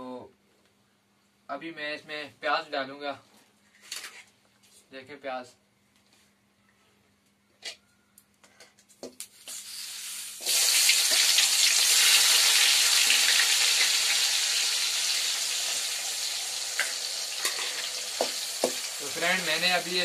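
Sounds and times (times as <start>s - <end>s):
onions sizzling in hot oil: 9.3s - 20.0s.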